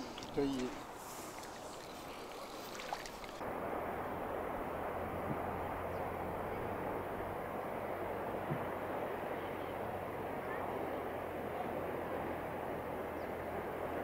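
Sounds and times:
river water rushing: 0.0s - 14.0s
wind: 0.0s - 14.0s.

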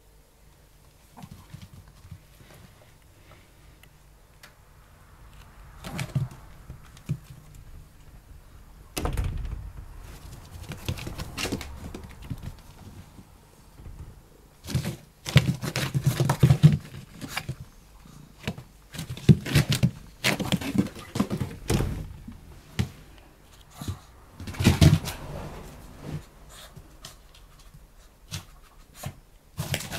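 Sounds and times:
rustling: 0.9s - 29.9s
sliding glass door opening: 5.3s - 14.6s, 21.5s - 23.2s, 24.3s - 27.5s
door thud: 8.9s - 14.6s, 21.5s - 22.4s
knocks: 9.0s - 14.9s.

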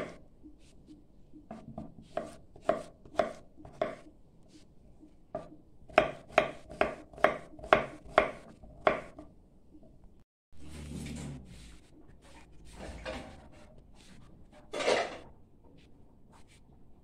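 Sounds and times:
knife chopping on wooden board: 1.5s - 4.1s, 5.4s - 9.2s.

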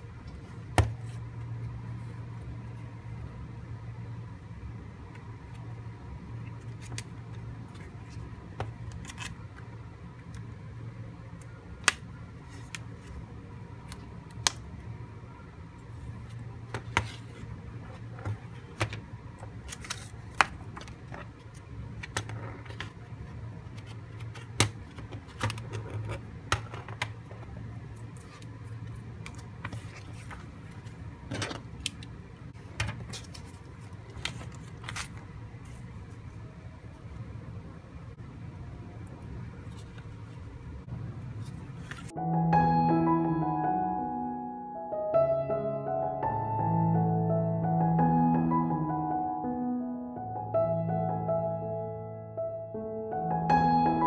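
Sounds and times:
low steady hum: 0.0s - 54.0s
paper and card rustling: 16.1s - 23.0s, 23.6s - 31.5s, 32.6s - 36.3s, 41.3s - 42.1s.

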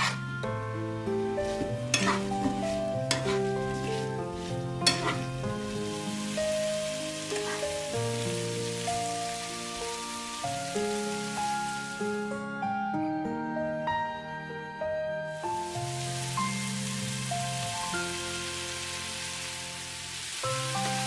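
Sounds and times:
spatula scraping and tapping pan: 0.0s - 0.2s, 1.4s - 5.5s, 7.3s - 7.8s
apples sizzling in butter: 0.0s - 12.3s, 15.3s - 21.0s
slow background music: 0.0s - 21.0s.

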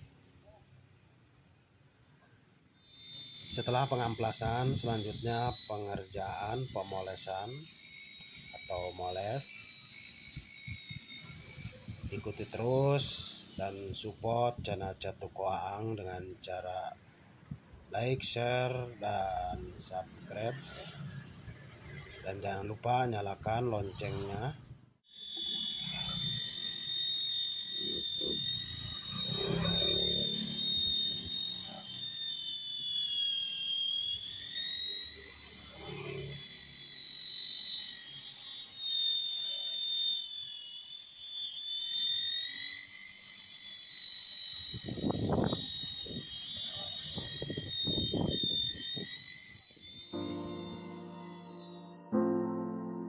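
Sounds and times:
polisher motor whine: 2.8s - 14.5s, 25.1s - 52.0s.

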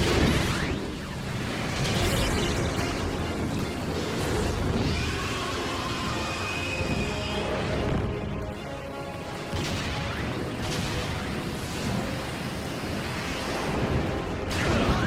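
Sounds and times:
dramatic music: 0.0s - 15.0s.

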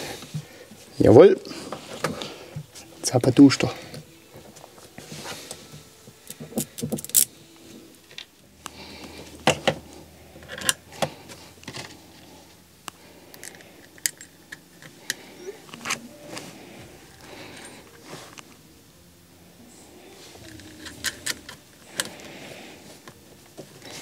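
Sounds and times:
small metallic clicks and clinks: 6.3s - 7.3s, 13.3s - 15.2s.

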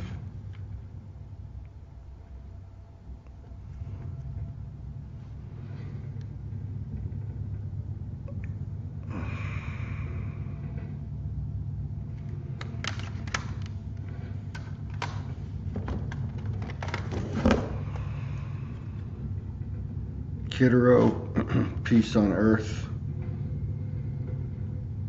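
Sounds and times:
steady low hum: 0.0s - 25.0s
plastic cases clicking: 12.6s - 13.8s.

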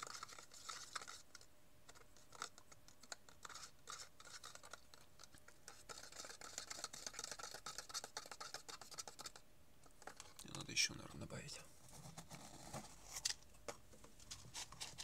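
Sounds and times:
rod scraping plastic cup: 0.0s - 9.4s.

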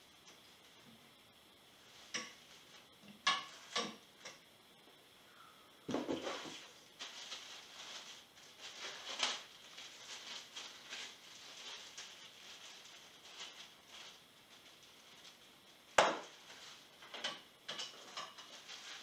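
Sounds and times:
plastic packaging crinkling: 6.1s - 17.1s, 17.9s - 19.0s.

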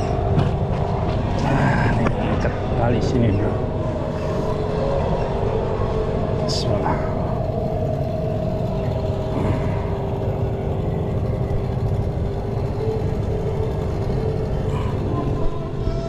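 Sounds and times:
outboard motor idling: 6.7s - 15.9s.

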